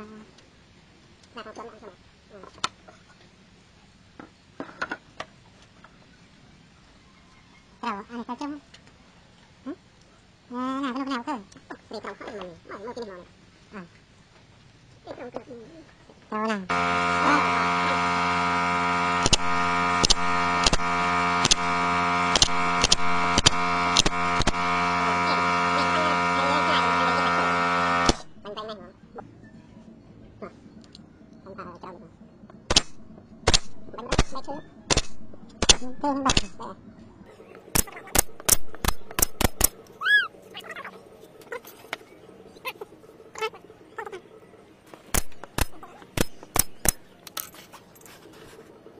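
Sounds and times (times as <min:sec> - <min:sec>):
loud electric hum: 0:16.7 - 0:47.5
nail gun firing into wood: 0:19.2 - 0:24.7, 0:28.0 - 0:28.3, 0:32.7 - 0:36.6, 0:37.7 - 0:39.8, 0:45.1 - 0:47.1.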